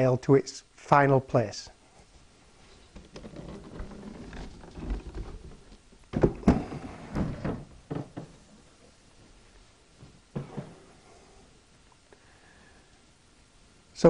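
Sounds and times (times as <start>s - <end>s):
wood shuffling and rubbing: 2.0s - 9.4s
wooden knocks and bumps: 2.9s - 8.9s, 10.0s - 10.9s.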